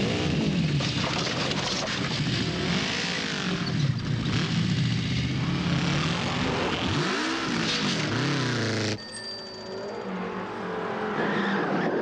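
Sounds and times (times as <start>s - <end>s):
motorcycle engine revving hard: 0.0s - 9.0s.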